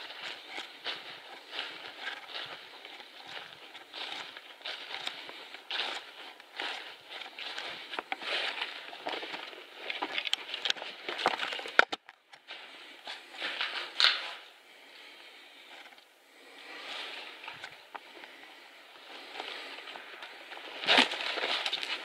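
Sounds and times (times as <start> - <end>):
footsteps crunching dry leaves: 0.0 - 11.8, 19.0 - 22.0.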